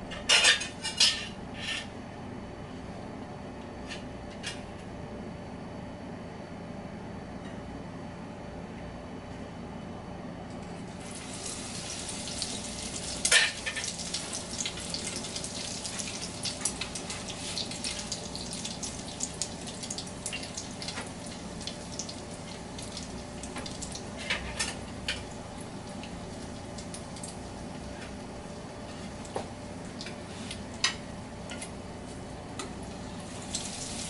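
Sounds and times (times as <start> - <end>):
hot oil sizzling: 11.0 - 27.6, 32.9 - 34.0.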